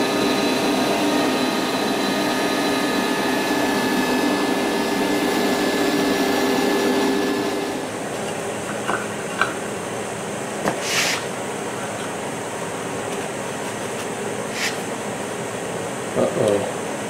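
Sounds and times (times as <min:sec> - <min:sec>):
router spindle whine: 0:00.0 - 0:08.1
dust extraction vacuum rush: 0:00.0 - 0:08.2.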